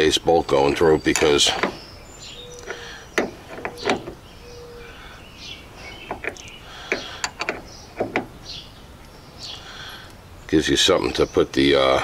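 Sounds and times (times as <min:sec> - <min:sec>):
ratchet wrench metal clicks: 0:06.1 - 0:08.2.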